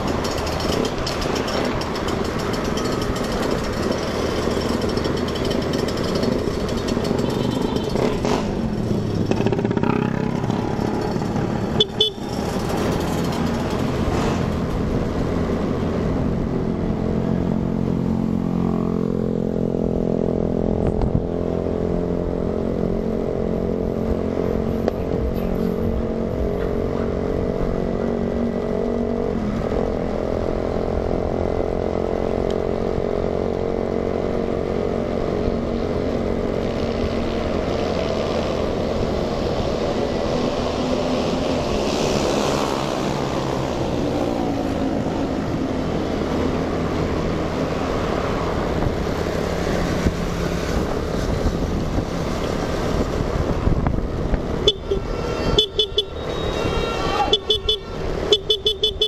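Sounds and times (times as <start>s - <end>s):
motor scooter engine running: 0.0s - 14.9s
road and wind noise: 0.0s - 59.0s.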